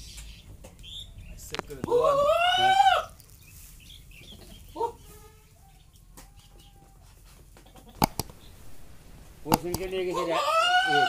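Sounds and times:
sharp clicks: 0:08.0 - 0:10.0.

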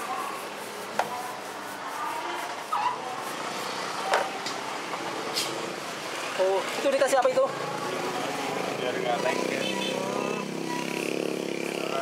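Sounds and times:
street background noise: 0:00.0 - 0:12.0.

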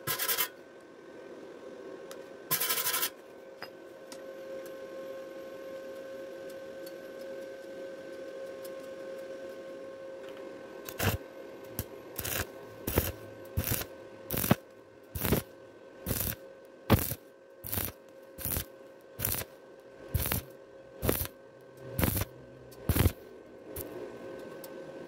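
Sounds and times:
faint hum: 0:00.0 - 0:25.0
welding arc crackling: 0:10.9 - 0:11.2, 0:11.8 - 0:19.5, 0:20.1 - 0:21.3, 0:22.0 - 0:22.3, 0:22.9 - 0:23.2.

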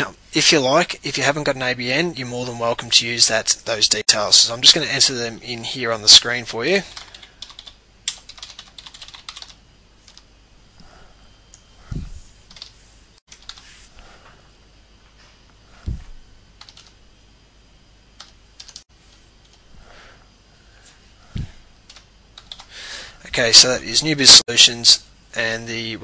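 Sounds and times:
keyboard typing: 0:06.9 - 0:10.3, 0:12.5 - 0:13.7, 0:16.6 - 0:17.0, 0:18.2 - 0:19.6, 0:21.8 - 0:22.7
dull low thumps: 0:11.8 - 0:12.3, 0:15.8 - 0:16.3, 0:21.3 - 0:21.6.

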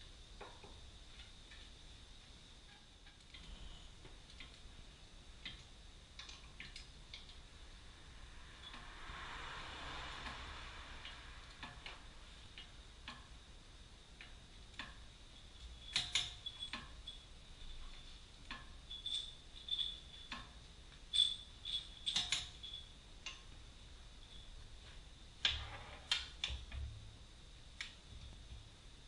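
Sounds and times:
hand tools clinking on metal: 0:21.2 - 0:22.9.

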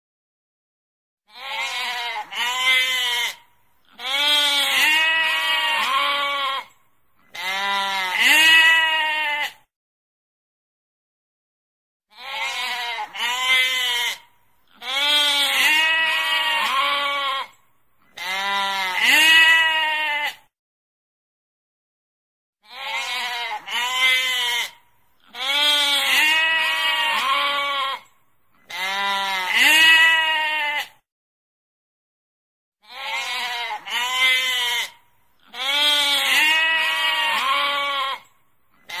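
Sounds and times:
sheep bleating: 0:01.3 - 0:09.6, 0:12.1 - 0:20.4, 0:22.6 - 0:31.0, 0:32.8 - 0:39.0.

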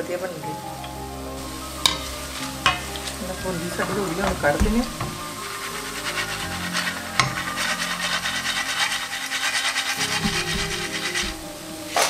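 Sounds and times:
spoon rasping on metal ladle: 0:03.8 - 0:12.0.

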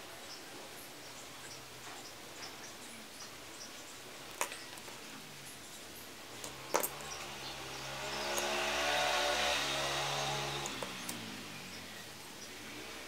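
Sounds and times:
motor engine hum: 0:06.3 - 0:13.0.

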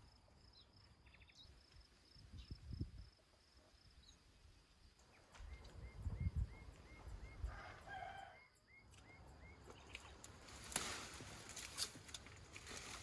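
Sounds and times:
rooster crowing: 0:07.4 - 0:08.6
rustling vine leaves: 0:10.0 - 0:13.0.

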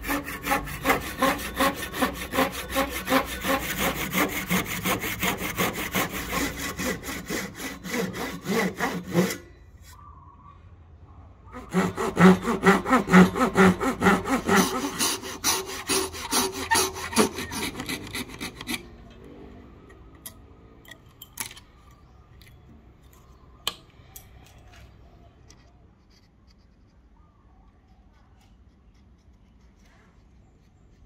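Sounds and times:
hand saw cutting wood: 0:00.0 - 0:09.4, 0:11.6 - 0:19.0
knife blade scraping: 0:16.1 - 0:18.9.

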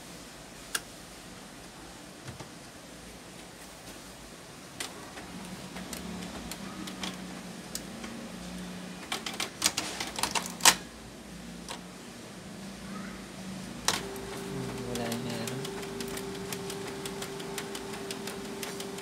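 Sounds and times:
sharp printer clicks: 0:04.8 - 0:07.9, 0:09.0 - 0:10.9, 0:13.8 - 0:19.0
printer mechanism running: 0:04.8 - 0:10.9, 0:13.8 - 0:19.0.

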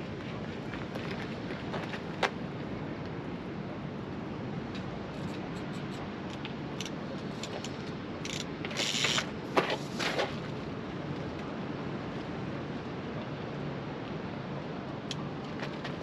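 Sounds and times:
wind: 0:00.0 - 0:16.0
fishing reel clicks: 0:08.2 - 0:09.3.

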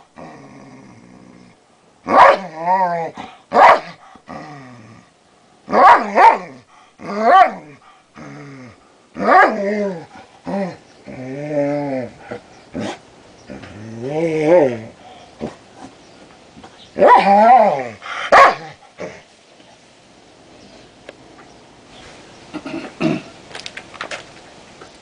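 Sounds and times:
dog growling: 0:00.2 - 0:01.6, 0:07.0 - 0:15.6
dog barking: 0:02.1 - 0:02.4, 0:03.6 - 0:03.9, 0:05.7 - 0:06.4, 0:18.3 - 0:18.7.

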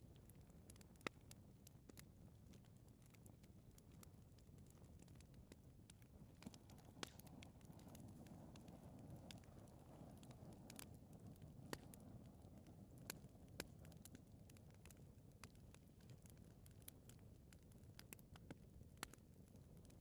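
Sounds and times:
fire crackling and popping: 0:00.0 - 0:20.0
fire rumbling: 0:04.1 - 0:19.9.

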